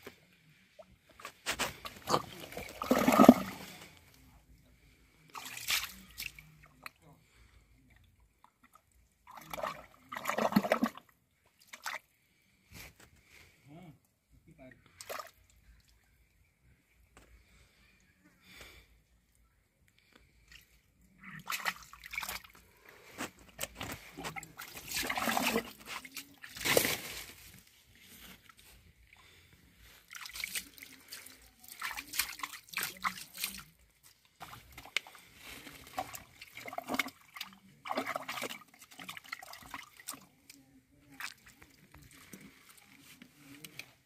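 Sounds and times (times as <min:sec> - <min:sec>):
hands sloshing through muddy water: 0:01.4 - 0:04.1, 0:05.3 - 0:06.8, 0:09.3 - 0:12.0, 0:21.2 - 0:27.6, 0:30.0 - 0:44.0.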